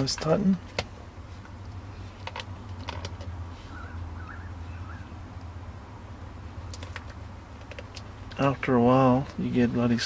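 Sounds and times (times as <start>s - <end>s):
cord rubbing and clicks: 0.0s - 3.4s, 6.7s - 8.4s
steady low hum: 0.0s - 10.0s.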